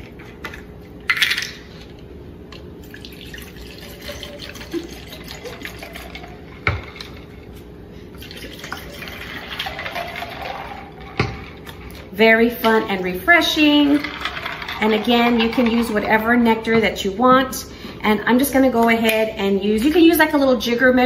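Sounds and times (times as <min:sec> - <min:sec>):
lemonade pouring into cups of ice: 0:02.8 - 0:07.3, 0:08.2 - 0:12.1, 0:13.4 - 0:16.0.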